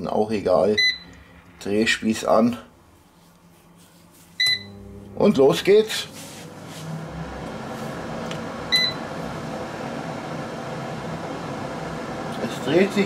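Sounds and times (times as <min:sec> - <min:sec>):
air fryer fan whirring: 0:00.0 - 0:02.8, 0:04.4 - 0:13.0
short electronic beep: 0:04.4 - 0:04.9.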